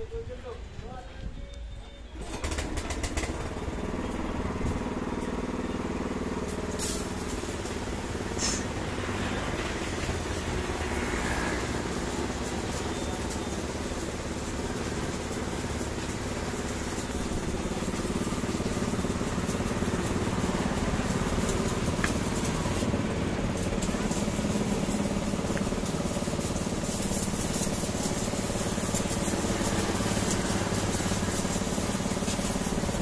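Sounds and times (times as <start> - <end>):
pressure washer motor humming: 2.2 - 33.0
water jet hissing: 4.3 - 33.0.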